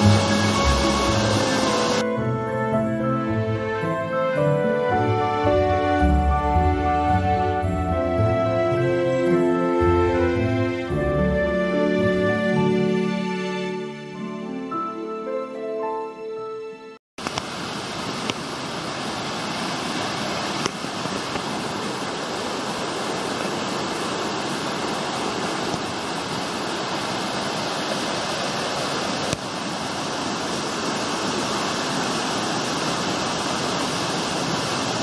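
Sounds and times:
waterfall rushing: 0.0s - 2.7s, 17.2s - 35.0s.

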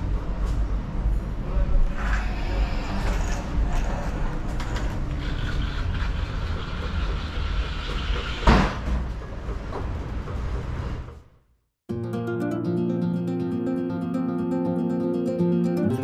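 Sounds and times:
low rumbling background noise: 0.0s - 11.4s.

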